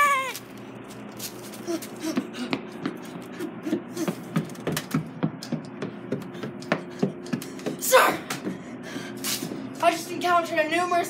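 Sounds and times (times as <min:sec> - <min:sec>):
faint hum: 0:00.0 - 0:11.0
quick footsteps on stairs: 0:01.6 - 0:09.7.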